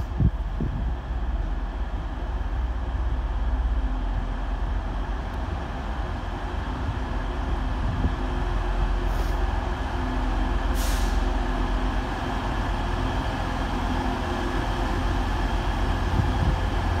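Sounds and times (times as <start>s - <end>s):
train diesel engines rumbling: 0.0s - 17.0s
air hissing: 10.7s - 11.3s.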